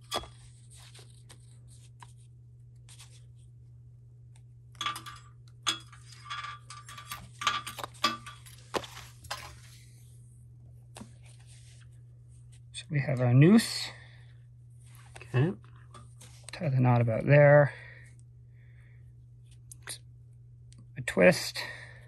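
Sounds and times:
steady low hum: 0.0s - 22.0s
cord rustling: 6.0s - 9.9s.

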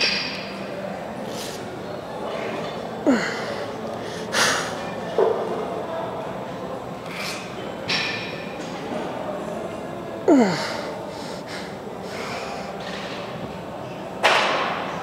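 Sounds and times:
person groaning: 3.1s - 3.5s, 10.3s - 11.7s
forceful breathing: 3.1s - 4.8s, 10.3s - 12.9s.

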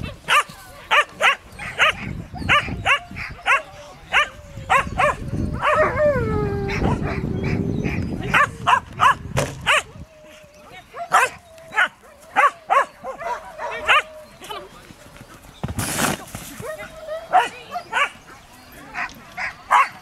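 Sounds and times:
dog barking: 0.0s - 5.9s, 8.3s - 9.9s, 11.0s - 14.1s, 16.6s - 18.2s, 18.9s - 20.0s.

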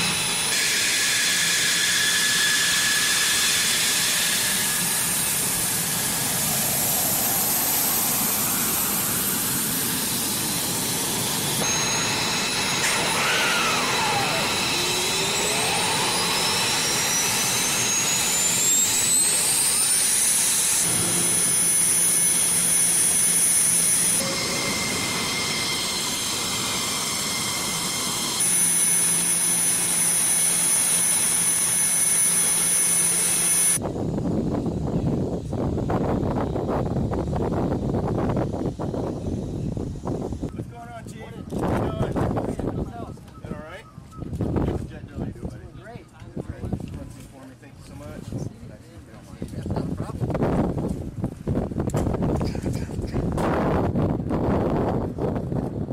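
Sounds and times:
engine spooling up: 0.0s - 40.2s
jet turbine engines whining: 0.0s - 43.6s.

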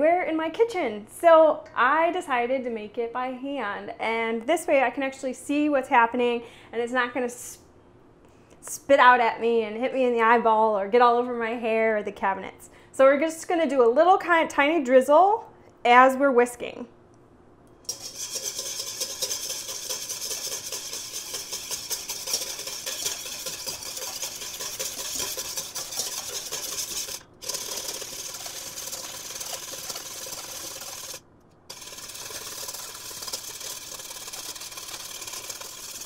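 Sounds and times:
whisk scraping metal bowl: 17.9s - 36.0s.

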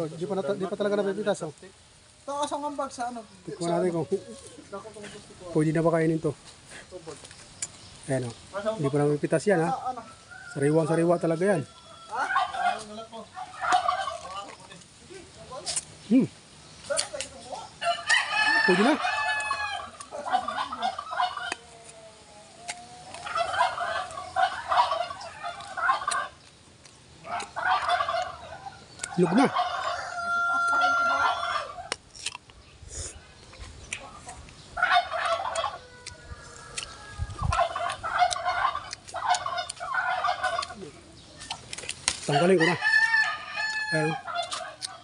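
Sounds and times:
turkeys gobbling: 0.0s - 6.1s, 8.4s - 32.6s, 33.5s - 45.0s
rooster crowing: 9.9s - 12.9s, 17.8s - 26.1s, 29.1s - 31.9s, 34.9s - 38.8s, 42.3s - 44.8s.

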